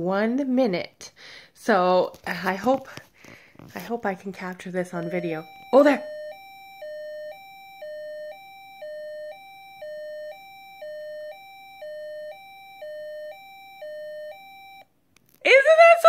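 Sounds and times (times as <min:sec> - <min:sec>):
two-tone electronic beeping: 0:05.0 - 0:14.9.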